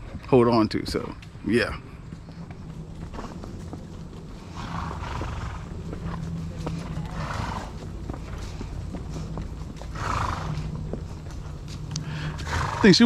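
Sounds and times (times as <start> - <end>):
horse hooves clopping on dirt: 0.0 - 13.0
horse breathy snorts: 4.4 - 8.7, 9.8 - 11.3, 11.9 - 12.9.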